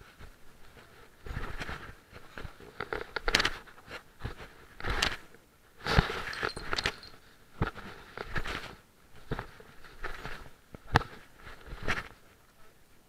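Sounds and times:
camera handling rustling: 6.3 - 7.2.

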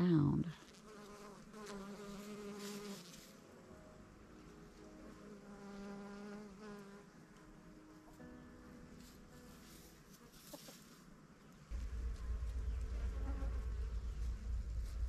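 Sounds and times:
insects buzzing: 0.6 - 3.5, 9.6 - 14.8.

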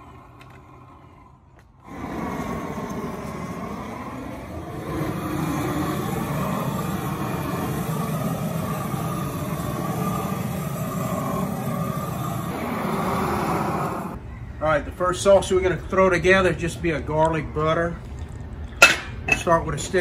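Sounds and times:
propane torch burning: 0.0 - 14.2, 18.5 - 20.0.

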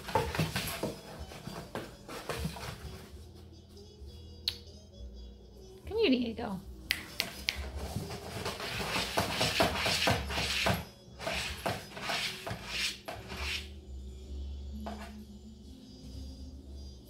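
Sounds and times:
cat scraping against cardboard box: 8.0 - 13.7.

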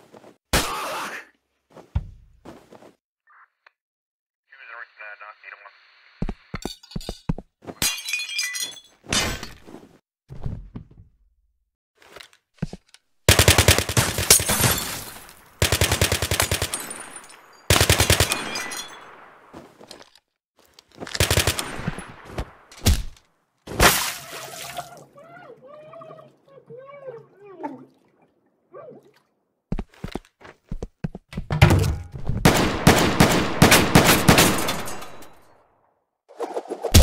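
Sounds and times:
automatic gunfire bursts: 13.3 - 14.2, 15.6 - 16.7.

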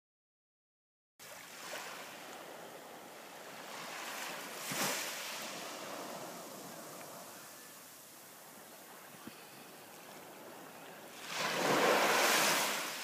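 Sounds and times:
small waves washing onto sand: 1.2 - 13.0.

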